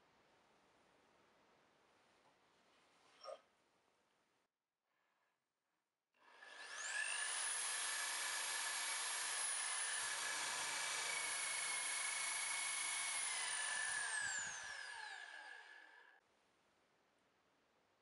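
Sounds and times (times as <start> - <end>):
drill bit drilling into plywood: 6.4 - 16.0
electric drill whining: 6.4 - 16.1.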